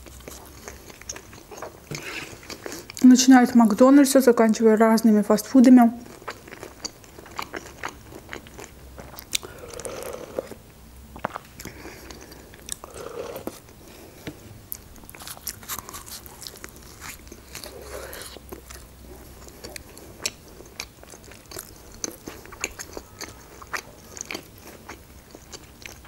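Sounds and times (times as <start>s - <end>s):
chewing: 0.0s - 3.1s, 6.0s - 26.0s
biting into wrap: 15.0s - 18.9s.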